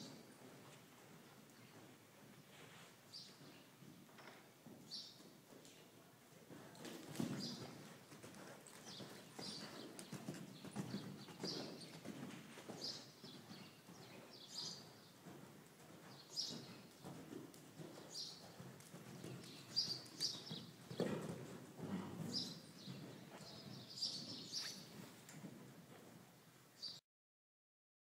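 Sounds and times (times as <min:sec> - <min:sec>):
muffled horse hoofbeats: 0:06.5 - 0:26.2.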